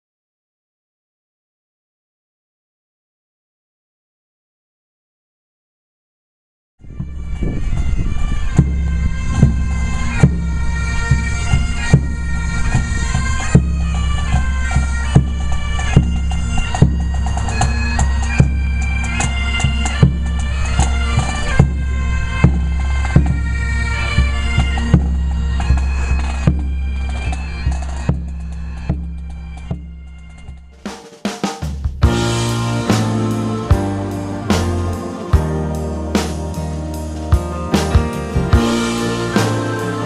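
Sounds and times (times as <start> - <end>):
bagpipes playing melody: 6.8 - 30.7, 32.0 - 40.0
drum beats: 8.6 - 40.0.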